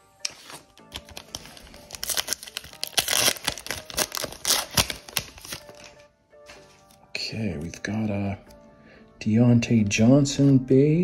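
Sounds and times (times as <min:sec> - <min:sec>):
foil wrapper tearing and crinkling: 0:00.2 - 0:05.9.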